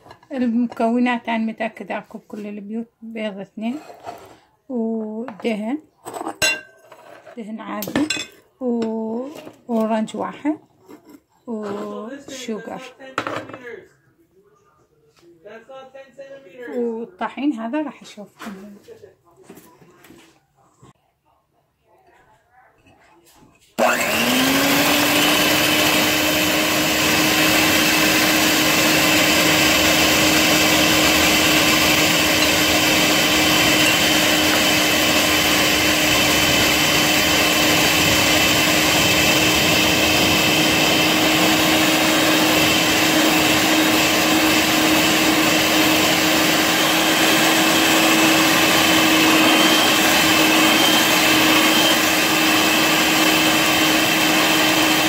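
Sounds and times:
electric whisk motor: 23.8s - 55.0s.

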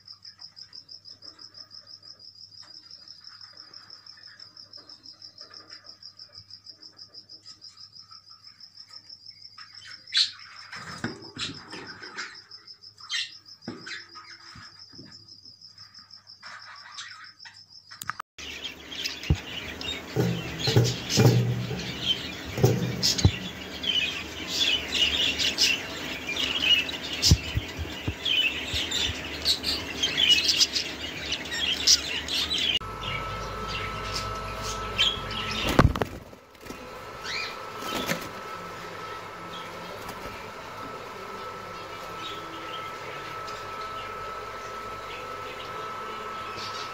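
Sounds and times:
budgerigars chirping and chattering: 18.4s - 36.2s
wings fluttering: 18.4s - 46.0s.

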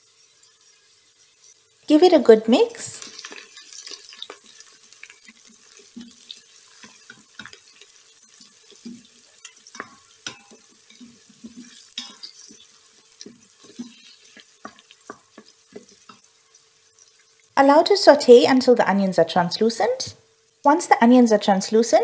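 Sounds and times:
onions sizzling in hot oil: 0.0s - 22.0s
wooden spoon scraping pot: 8.7s - 16.3s.

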